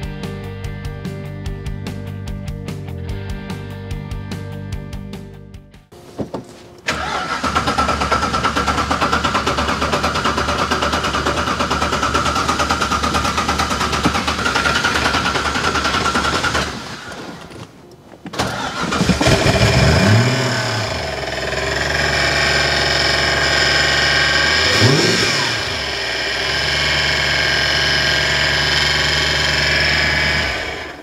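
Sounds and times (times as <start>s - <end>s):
car engine revving with chattery racket: 6.8s - 17.4s, 18.3s - 31.0s.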